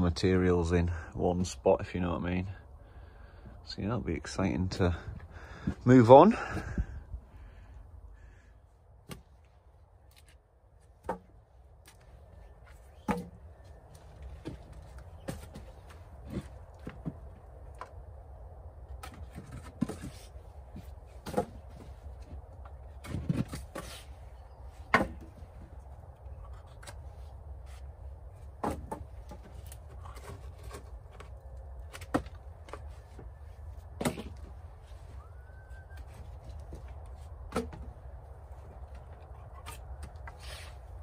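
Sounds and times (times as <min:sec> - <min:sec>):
steady low rumble: 0:00.0 - 0:10.8
wood knocks and cracks: 0:18.9 - 0:22.0, 0:24.9 - 0:25.6, 0:28.5 - 0:32.9, 0:33.9 - 0:34.6, 0:36.9 - 0:38.0.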